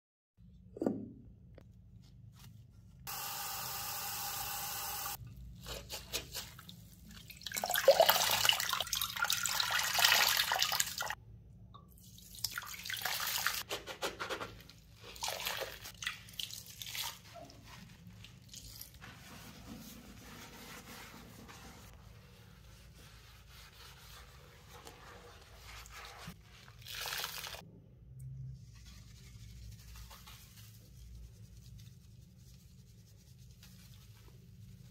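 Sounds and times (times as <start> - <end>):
sponge scrubbing basin: 5.1 - 11.2, 12.8 - 27.6, 28.6 - 34.9.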